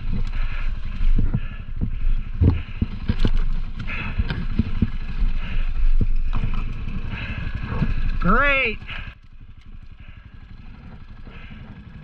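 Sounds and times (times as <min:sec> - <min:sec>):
bike wheels knocking on rocks: 0:00.0 - 0:09.1
wind buffeting microphone: 0:00.0 - 0:09.2
low rumble: 0:00.0 - 0:12.0.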